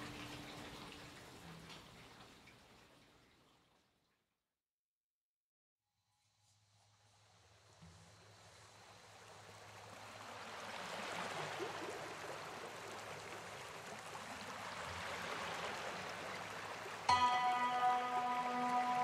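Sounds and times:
background music with held tones: 17.1s - 19.0s.

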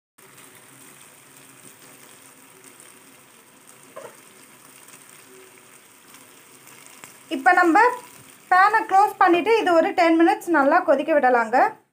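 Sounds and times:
gravy sizzling in a pan: 0.2s - 11.5s.

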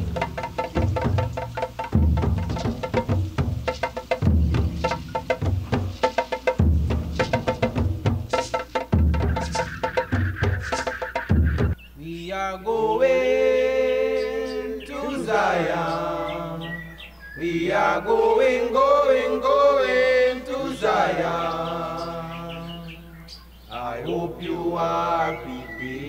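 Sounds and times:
voices chanting long notes: 9.2s - 23.1s, 23.7s - 26.0s.

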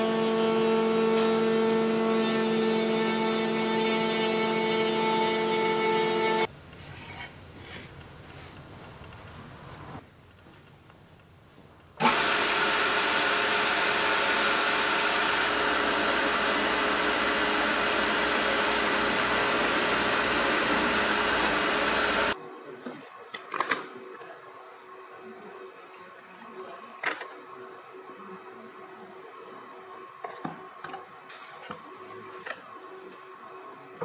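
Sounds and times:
boring machine motor running: 12.0s - 22.4s.

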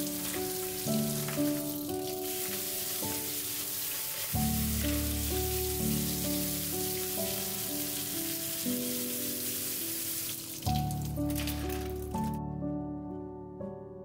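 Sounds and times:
faucet water splashing on metal: 0.0s - 12.3s
soft background music: 0.0s - 14.0s.

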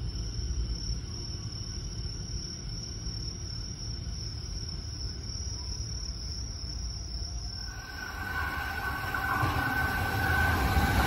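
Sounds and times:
crickets trilling: 0.0s - 11.0s
electric train rumbling: 7.4s - 11.0s.

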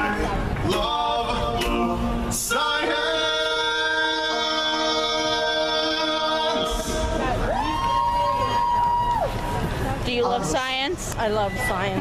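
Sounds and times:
a cappella singing over loudspeakers: 0.0s - 7.4s.

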